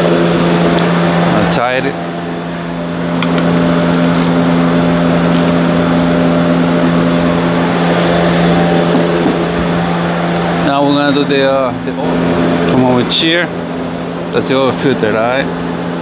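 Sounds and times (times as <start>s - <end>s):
machine hum: 0.0s - 16.0s
ratchet wrench clicks: 4.0s - 4.4s, 5.3s - 5.6s.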